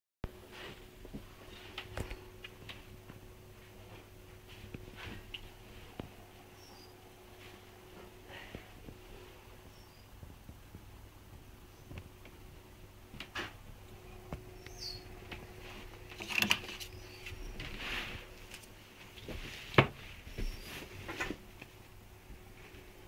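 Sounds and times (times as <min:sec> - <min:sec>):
shirt on plastic hanger rustling: 0:15.3 - 0:21.5.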